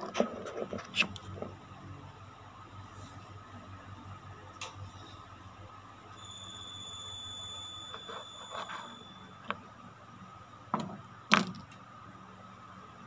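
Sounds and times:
thin high steady tone: 0:04.9 - 0:10.4.

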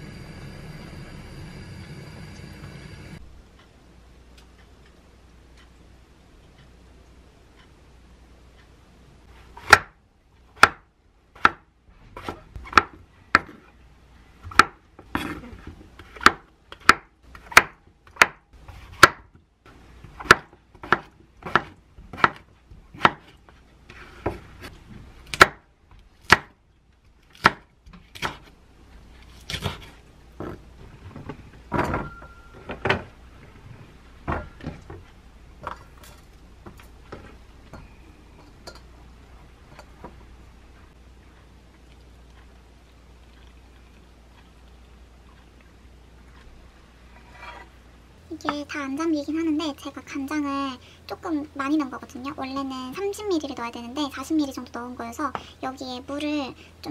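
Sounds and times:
knife chopping on wooden board: 0:20.1 - 0:23.3
short metallic ring: 0:32.0 - 0:32.6.

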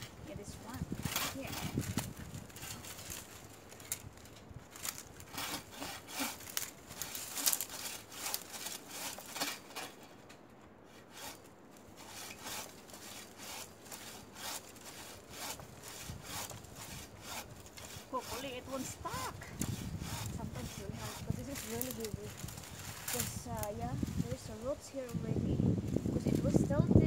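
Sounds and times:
bow saw cutting wood: 0:04.8 - 0:10.0, 0:10.9 - 0:11.4, 0:12.0 - 0:23.3.

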